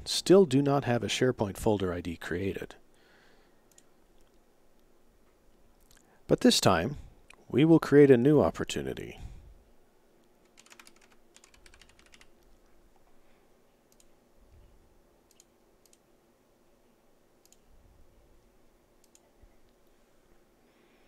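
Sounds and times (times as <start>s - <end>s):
faint room hum: 0.0s - 21.0s
keyboard typing: 10.4s - 12.5s
mouse clicks: 15.3s - 16.0s.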